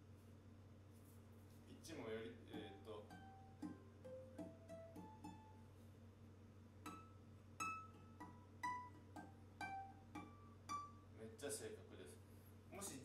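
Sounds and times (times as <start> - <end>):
ukulele plucked notes: 2.4 - 5.7, 6.8 - 11.2.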